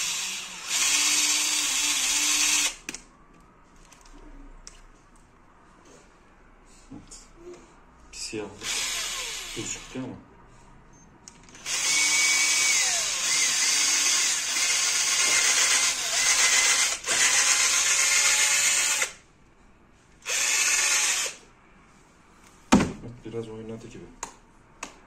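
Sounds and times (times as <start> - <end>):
cordless drill boring into plastic: 0.0 - 2.8, 8.6 - 9.9, 11.5 - 19.2, 20.2 - 21.4.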